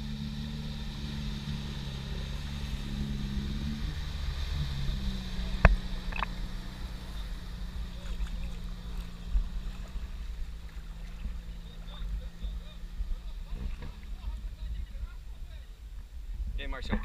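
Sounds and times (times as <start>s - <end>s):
jeep engine at low revs: 0.0s - 17.0s
water churning and splashing: 0.4s - 15.4s.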